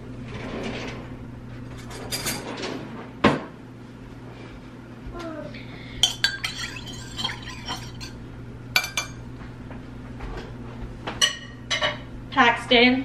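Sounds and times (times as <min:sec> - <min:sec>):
spoon clinking on crockery: 0:06.0 - 0:08.2, 0:08.8 - 0:09.2
spoon stirring in a mug: 0:06.0 - 0:08.2, 0:08.8 - 0:09.2.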